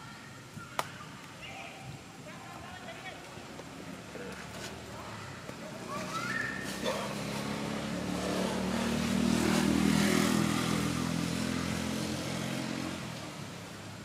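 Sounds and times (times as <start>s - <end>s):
vehicle passing by: 5.7s - 13.8s.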